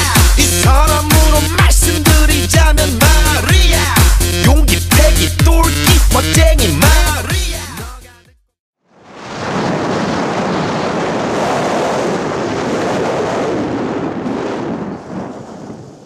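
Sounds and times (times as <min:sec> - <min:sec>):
wind buffeting microphone: 0:09.2 - 0:16.0.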